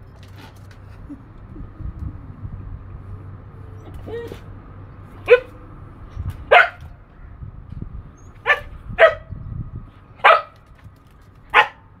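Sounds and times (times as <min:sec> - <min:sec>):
dog barking: 0:05.3 - 0:05.6, 0:06.5 - 0:06.9, 0:08.4 - 0:09.3, 0:10.2 - 0:10.6, 0:11.5 - 0:11.9.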